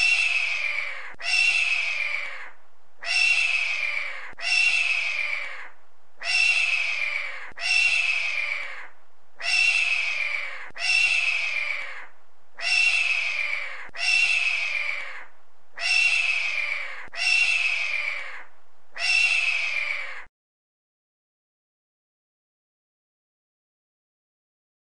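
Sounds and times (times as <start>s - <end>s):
hawk screaming: 0.0s - 20.3s.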